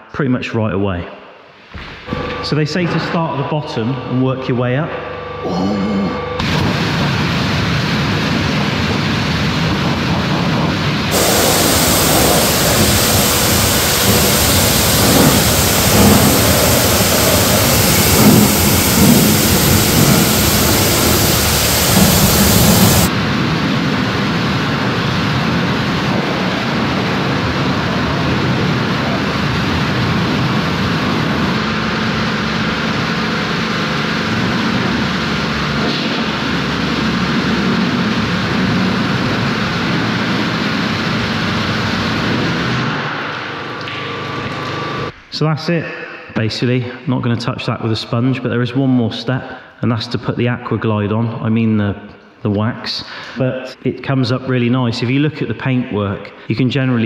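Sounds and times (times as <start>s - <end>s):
pressure washer jet spraying: 11.1s - 23.1s.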